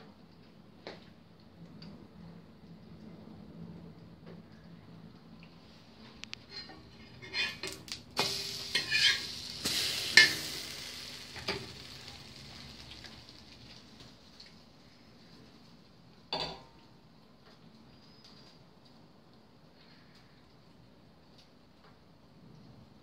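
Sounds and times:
bread sizzling in pan: 6.5 - 15.9.

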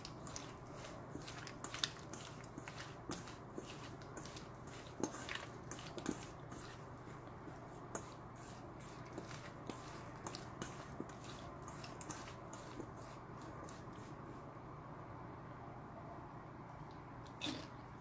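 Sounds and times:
radish cubes squishing in metal bowl: 0.0 - 14.1.

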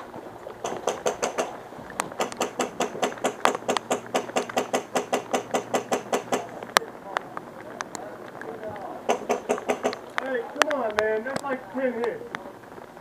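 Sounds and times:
rapid sharp clicks and knocks: 0.6 - 6.8, 9.1 - 11.1.

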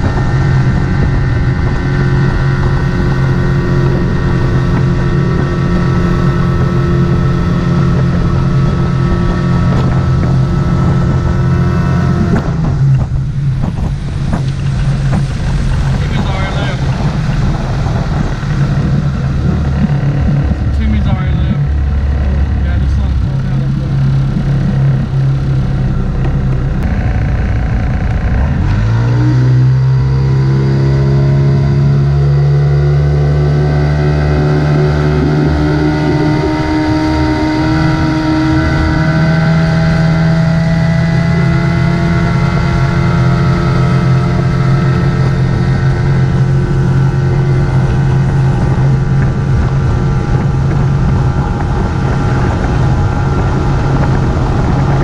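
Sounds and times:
rushing water: 0.0 - 27.0
outboard motor running: 0.0 - 55.0.

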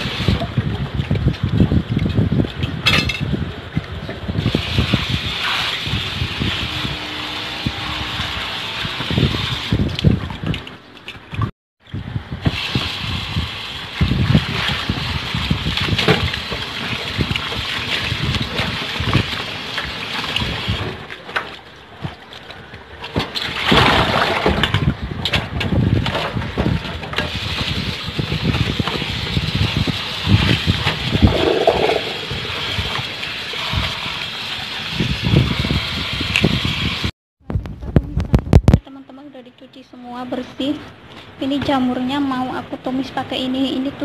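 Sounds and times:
hands sloshing and rubbing leaves: 12.4 - 24.3, 27.3 - 36.4
water splashing into a colander: 12.4 - 25.0, 25.6 - 37.0
tap water running into a bowl: 27.2 - 37.0.

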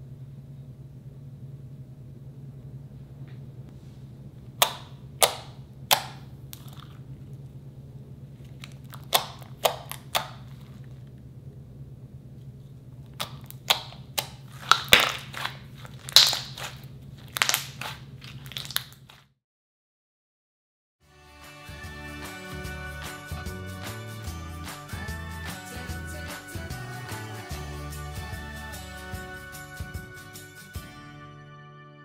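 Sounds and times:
steady low hum: 0.0 - 18.5
air popping from slime: 4.6 - 7.0, 8.7 - 10.8, 13.2 - 19.2
slime stretched by hand: 13.2 - 19.3.

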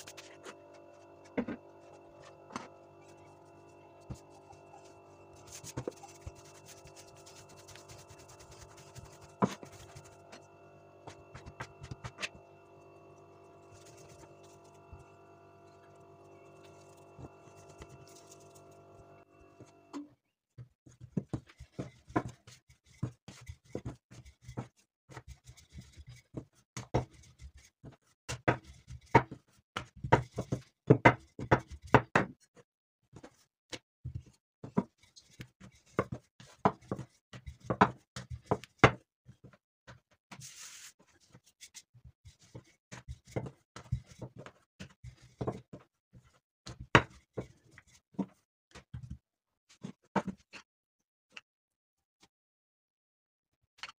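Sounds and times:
rolling pin on wooden table: 0.0 - 3.4, 4.0 - 10.4, 21.0 - 32.3.

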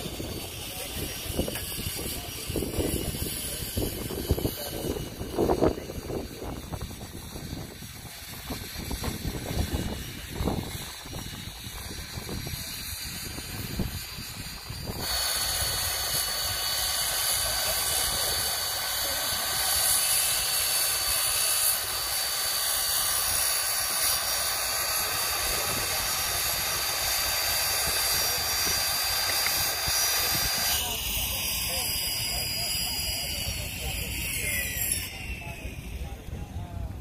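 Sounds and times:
outdoor background noise: 0.0 - 37.0
power saw cutting plywood: 8.1 - 35.7.

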